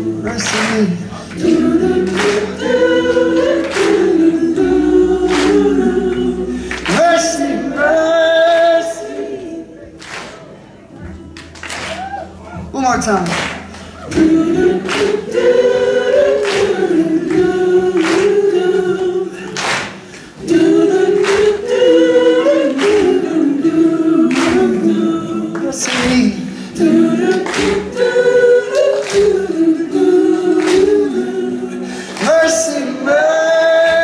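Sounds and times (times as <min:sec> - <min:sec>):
group singing a refrain: 0:00.0 - 0:12.4, 0:13.7 - 0:34.0
hand claps: 0:00.3 - 0:02.8, 0:03.4 - 0:04.3, 0:05.3 - 0:07.5, 0:09.9 - 0:18.6, 0:19.4 - 0:21.8, 0:22.6 - 0:23.3, 0:24.2 - 0:30.0, 0:30.6 - 0:31.2, 0:32.0 - 0:32.8.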